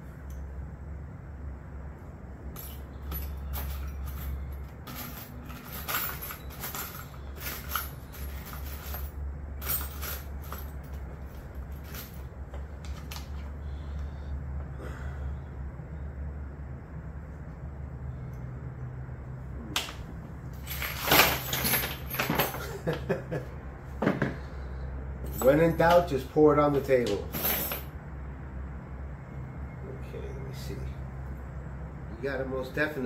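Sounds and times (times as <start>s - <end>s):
steady low hum: 0.0s - 33.0s
metal keys clinking: 2.5s - 12.3s, 20.6s - 22.9s, 27.2s - 27.9s.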